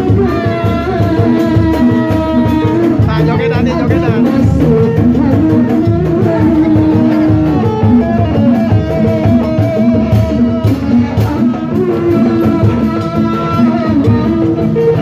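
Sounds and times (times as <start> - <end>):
plucked guitar-like melody: 0.0 - 15.0
steady drum beat: 0.0 - 15.0
procession music over sound system: 1.2 - 15.0.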